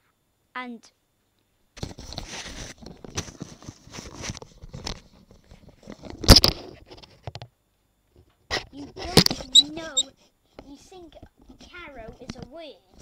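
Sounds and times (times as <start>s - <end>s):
headphones handling noise: 1.8s - 7.0s.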